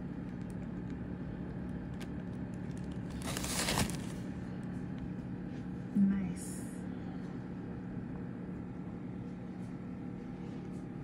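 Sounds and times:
steady low hum: 0.0s - 11.0s
plastic bag crinkling: 1.6s - 4.3s.

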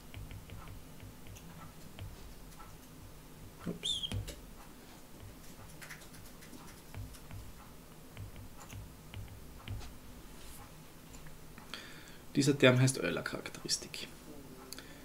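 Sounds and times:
stylus tapping on tablet screen: 0.0s - 2.9s, 3.5s - 10.0s.

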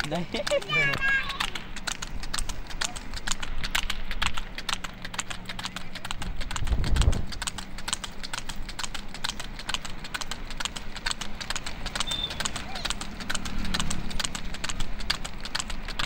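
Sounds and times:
hooves clip-clopping on pavement: 0.0s - 16.0s
low rumble: 1.6s - 8.7s.

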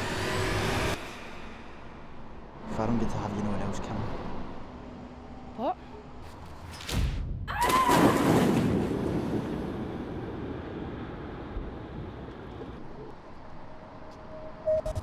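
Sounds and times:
wind: 0.0s - 15.0s
loud splash-like rush: 7.6s - 10.2s.

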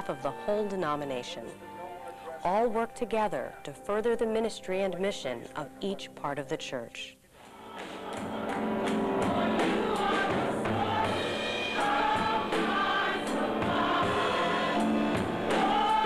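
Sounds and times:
gospel choir singing: 7.4s - 16.0s.

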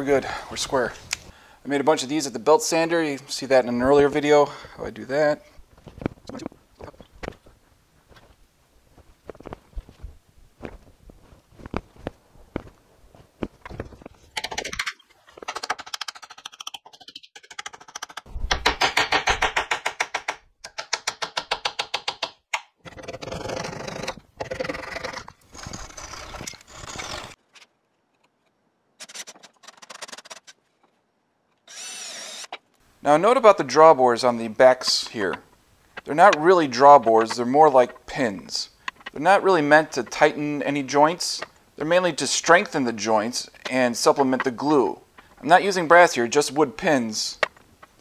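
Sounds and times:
fast scraping strokes: 23.2s - 27.4s.

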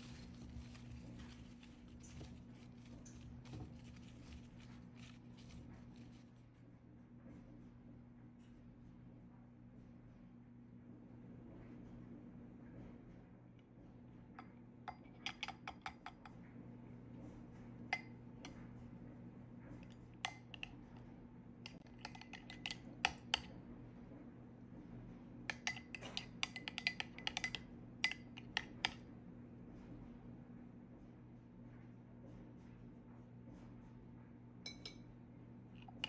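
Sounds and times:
low steady hum: 0.0s - 36.0s
spoon clinking against glass bowl: 21.8s - 23.5s, 25.5s - 29.0s, 34.6s - 35.1s.

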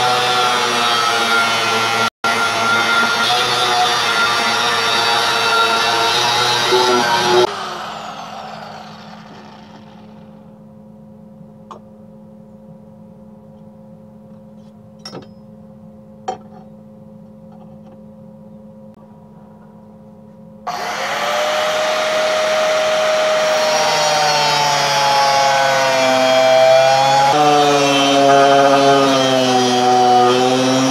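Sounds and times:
angle grinder whining: 0.0s - 10.4s, 20.7s - 30.9s.

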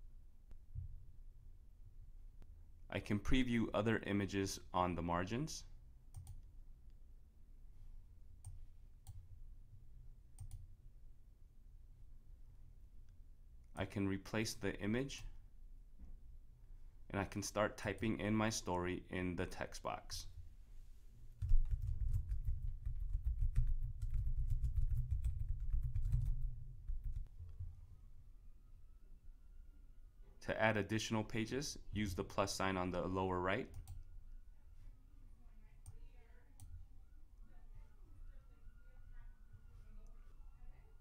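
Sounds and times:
computer mouse clicks: 6.1s - 6.5s
typing on computer keyboard: 21.4s - 27.5s.

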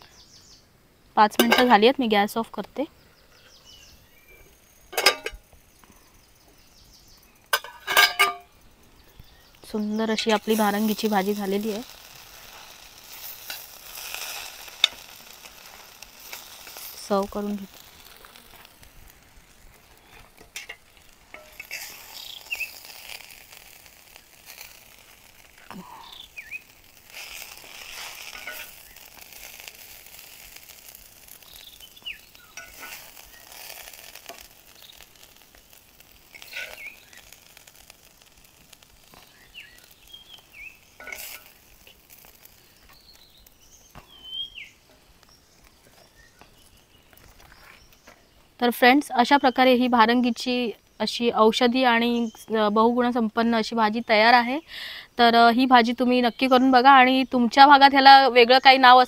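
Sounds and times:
faint pan sizzle: 0.0s - 59.0s
metal spoon scraping a pan: 4.9s - 5.4s, 7.5s - 8.5s, 10.2s - 18.8s, 19.9s - 26.2s, 27.1s - 30.9s, 32.3s - 35.0s, 36.2s - 37.9s, 40.8s - 42.4s.

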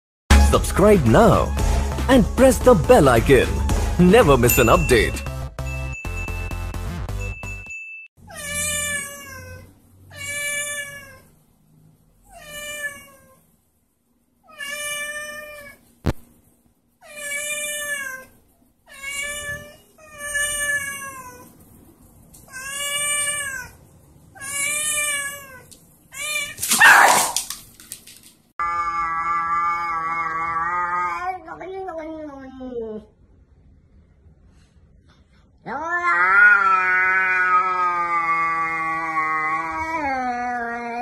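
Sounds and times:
cat meowing: 8.3s - 11.3s, 12.3s - 13.4s, 17.0s - 18.3s, 18.9s - 21.5s, 22.5s - 23.8s, 24.4s - 27.4s, 28.6s - 32.8s, 35.6s - 41.0s.

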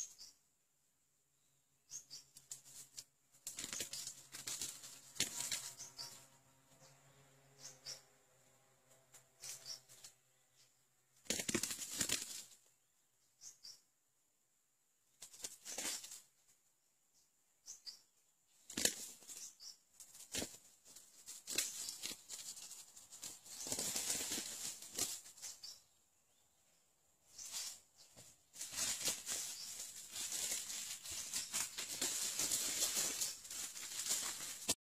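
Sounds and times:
rustling in dry leaves: 2.4s - 6.4s, 9.1s - 10.1s, 11.3s - 12.6s, 15.2s - 16.3s, 18.6s - 25.8s, 27.3s - 34.8s.

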